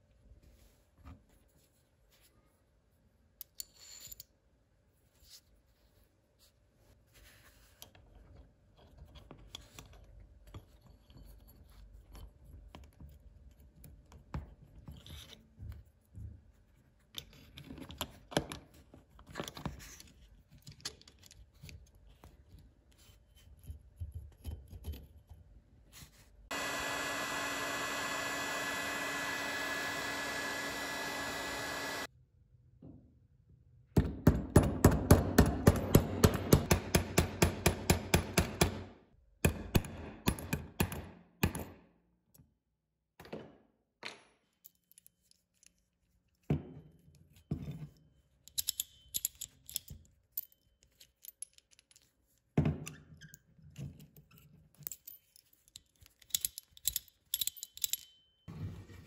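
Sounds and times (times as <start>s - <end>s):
power tool running: 26.5s - 32.1s.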